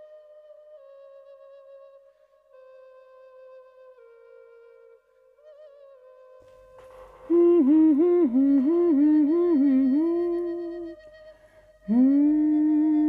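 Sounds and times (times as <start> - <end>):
person humming a slow tune: 5.8 - 13.0.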